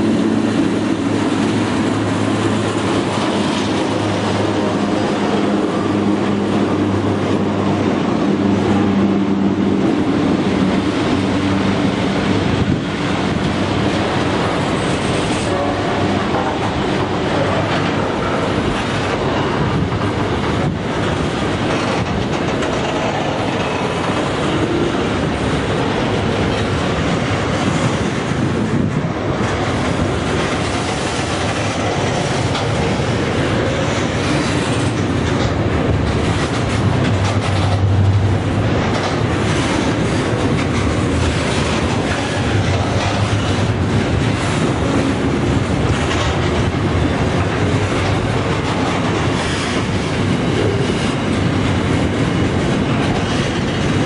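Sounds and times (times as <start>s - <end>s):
clickety-clack over rail joints: 0.0s - 54.0s
train wheels rumbling on rails: 0.0s - 54.0s.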